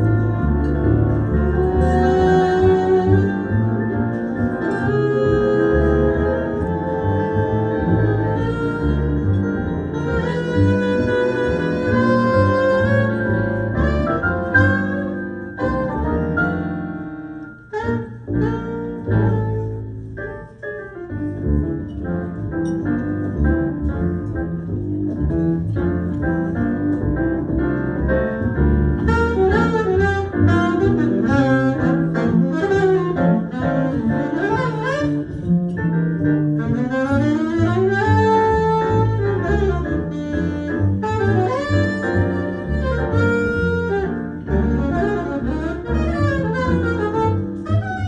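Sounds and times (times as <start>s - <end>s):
double bass: 0.0s - 48.0s
saxophone melody: 0.2s - 16.8s, 17.4s - 20.0s, 29.0s - 35.5s, 36.5s - 48.0s.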